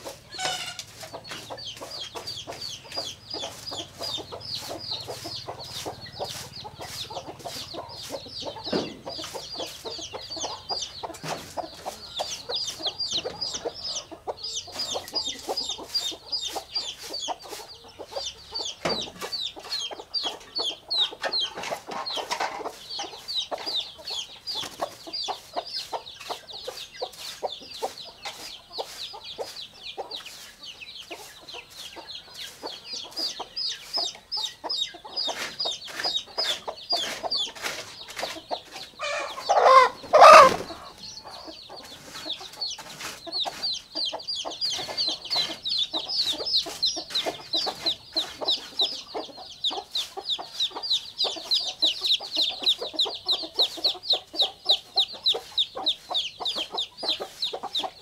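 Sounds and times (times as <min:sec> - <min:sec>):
chicks peeping: 0:00.0 - 0:58.0
adult chicken call: 0:00.3 - 0:00.9, 0:39.0 - 0:40.9.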